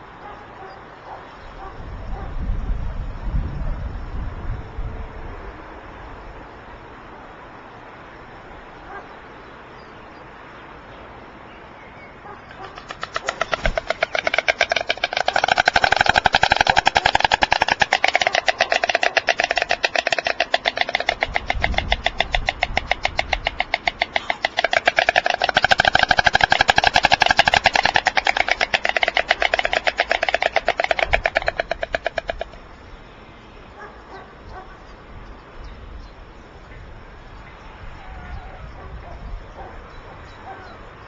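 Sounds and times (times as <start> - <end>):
storks clattering bills: 12.5 - 32.6.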